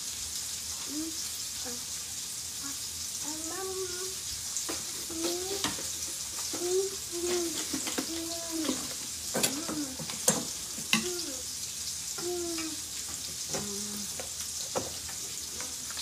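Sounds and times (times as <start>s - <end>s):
steak sizzling in a pan: 0.0s - 16.0s
clicks and clatters of handling: 4.7s - 11.1s.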